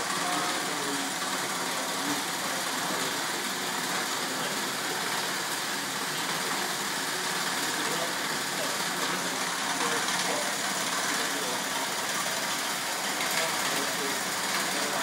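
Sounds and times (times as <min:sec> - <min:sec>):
machinery humming and hissing: 0:00.0 - 0:15.0.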